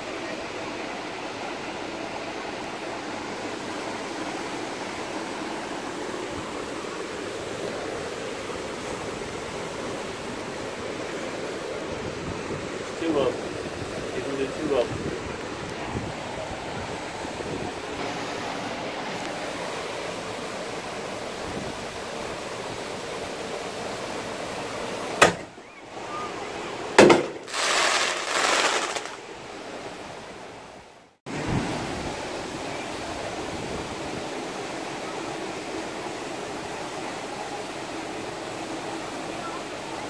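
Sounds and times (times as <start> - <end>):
surf: 0.0 - 30.6, 31.3 - 40.0
wind: 0.0 - 40.0
firework bangs: 27.0 - 29.2
hiss: 27.2 - 29.2.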